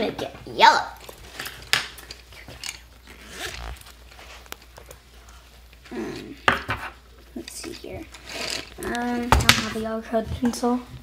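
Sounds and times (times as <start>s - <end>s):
paper rustling and scraping: 3.1s - 5.0s.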